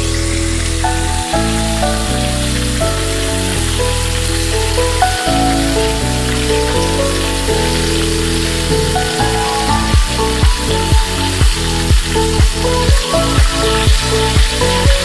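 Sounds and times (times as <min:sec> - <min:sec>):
background music: 0:00.0 - 0:15.0
fish sizzling in oil: 0:00.0 - 0:15.0
deep thumping beat: 0:09.7 - 0:15.0.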